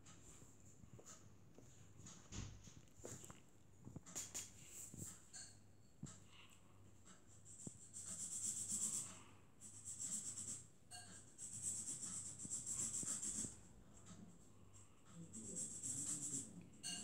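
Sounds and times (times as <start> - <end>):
felt-tip pen scribbling on paper: 7.1 - 17.0.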